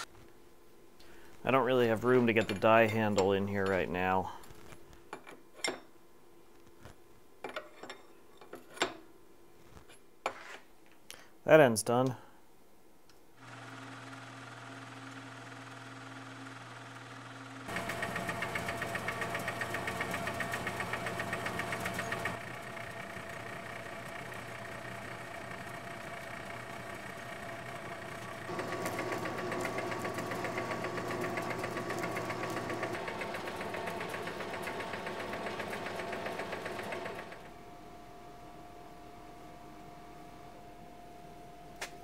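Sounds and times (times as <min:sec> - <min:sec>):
metal lathe running: 0:13.4 - 0:37.5.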